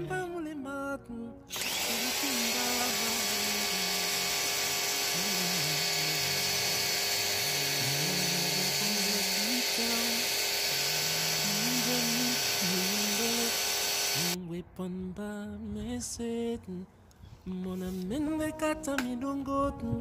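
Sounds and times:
background music with slow bass: 0.0 - 4.2, 5.2 - 13.5, 17.5 - 20.0
pressure washer motor whine: 1.5 - 14.4.

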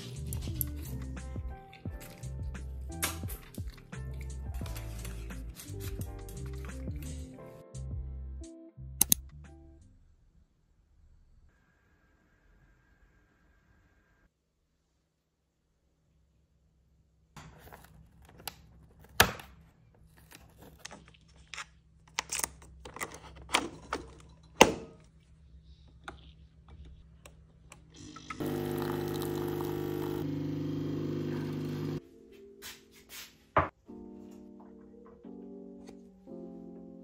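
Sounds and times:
coffee machine pump buzzing: 28.0 - 32.0.

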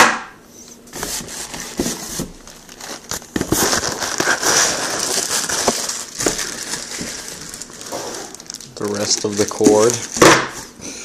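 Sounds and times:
plastic bag crinkling: 2.4 - 10.3.

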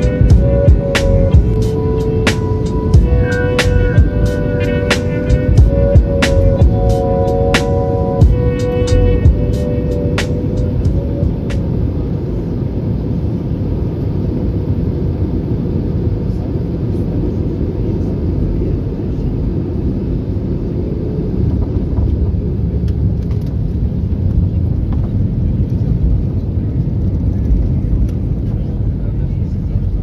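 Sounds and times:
airliner cabin rumble: 0.0 - 30.0.

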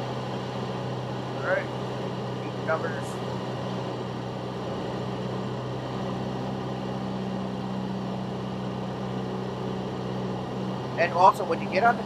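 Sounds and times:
airplane engine and propeller droning: 0.0 - 12.0.

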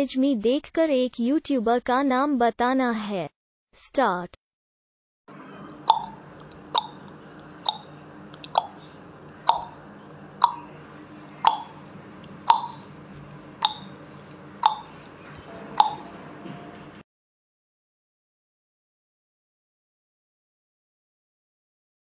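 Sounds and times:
faint low hum: 5.3 - 17.0
timer ticking: 5.7 - 16.1.

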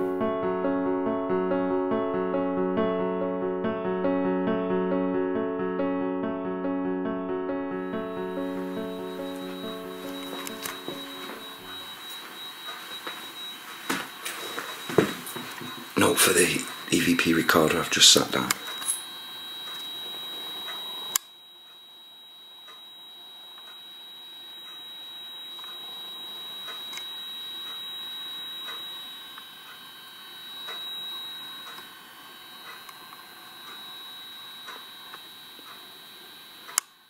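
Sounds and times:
high-pitched electronic whine: 7.7 - 37.0
sharp click: 10.2 - 11.4, 36.7 - 37.0
faint ticks: 22.6 - 22.9.

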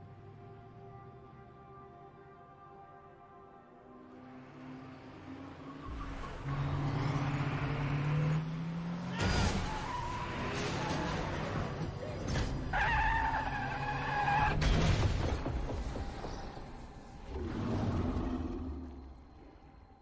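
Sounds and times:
noisy traffic rush: 0.0 - 19.6
truck tyres squealing: 5.7 - 8.4, 9.0 - 14.6.

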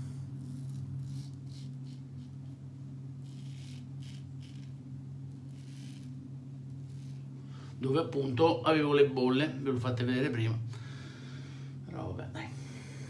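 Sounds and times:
steady low hum: 0.0 - 13.0
razor scraping stubble: 0.4 - 2.6, 3.2 - 7.4.

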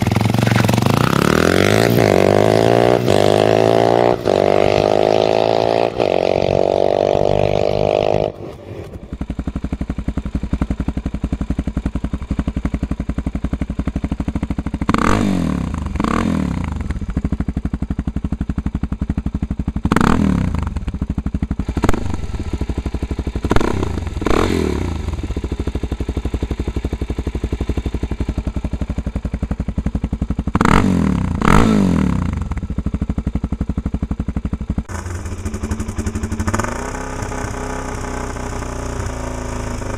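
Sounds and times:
motorcycle engine idling: 0.0 - 39.9
motorcycle engine revving: 0.0 - 39.9.

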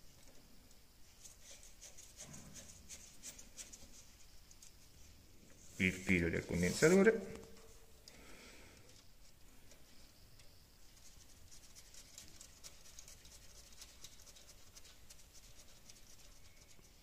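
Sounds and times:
light scratching of hands: 1.0 - 7.8.

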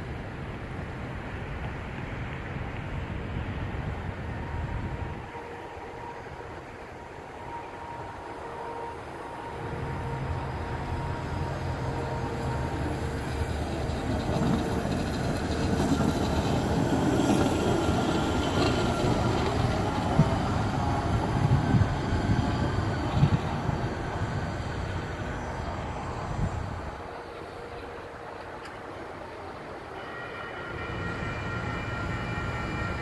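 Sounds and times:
truck rumbling along rails: 6.4 - 29.9.

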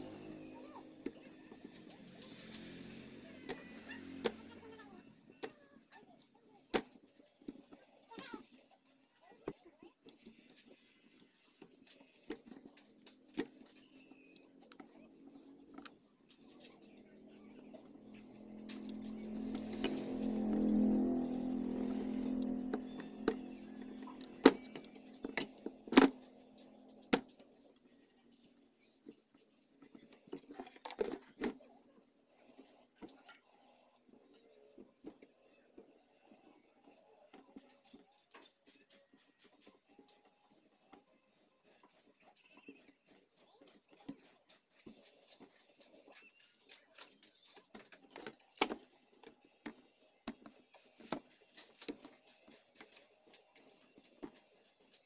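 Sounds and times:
low hum: 16.9 - 27.1.

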